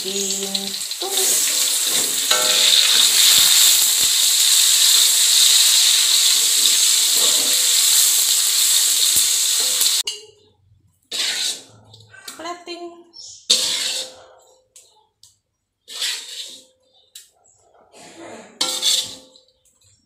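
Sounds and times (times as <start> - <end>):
food sizzling in hot oil: 0.0 - 10.0, 18.6 - 19.3
metal spatula scraping wok: 0.1 - 10.3, 11.1 - 12.3, 13.5 - 14.5, 15.9 - 17.3, 18.6 - 19.4.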